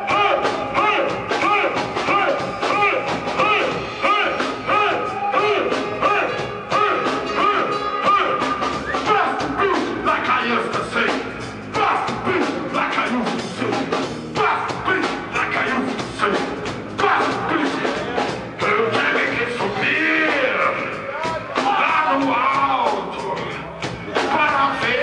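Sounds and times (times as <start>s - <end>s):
person singing: 0.0s - 13.8s
reggae band playing: 0.0s - 25.0s.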